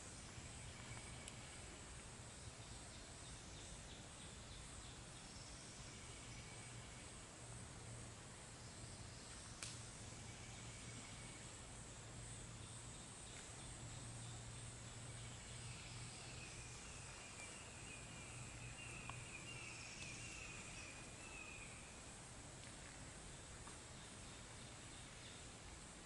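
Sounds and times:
low insect buzzing call: 0.0s - 25.5s
click: 9.6s - 9.8s.

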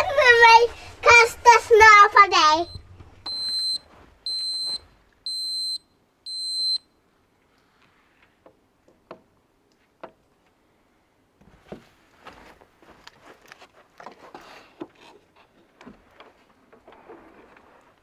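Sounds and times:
knocks and rustles: 11.4s - 18.0s.

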